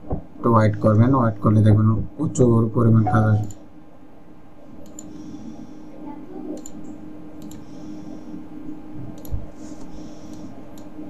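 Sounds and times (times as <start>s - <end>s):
low hum: 0.0s - 11.0s
computer mouse clicking: 4.8s - 5.2s, 6.6s - 7.7s, 9.2s - 9.4s, 10.3s - 10.9s.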